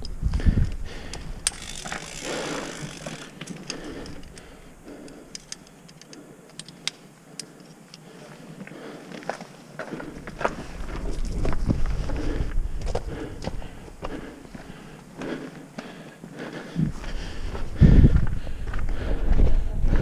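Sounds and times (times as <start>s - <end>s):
sharp clicks: 0.0s - 8.1s
footsteps on gravel: 8.3s - 16.0s.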